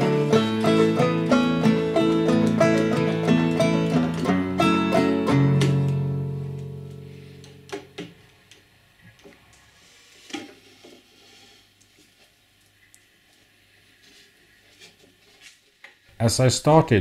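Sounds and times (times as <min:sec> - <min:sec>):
plucked-string music: 0:00.0 - 0:08.2.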